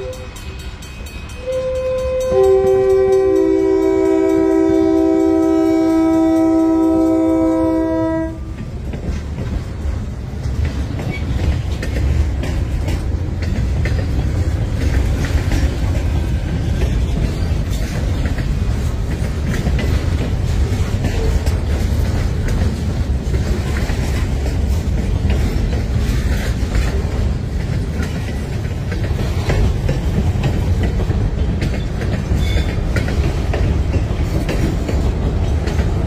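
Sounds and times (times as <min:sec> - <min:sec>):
wheels clacking over rail joints: 0:00.0 - 0:36.0
train air horn chord: 0:01.3 - 0:08.5.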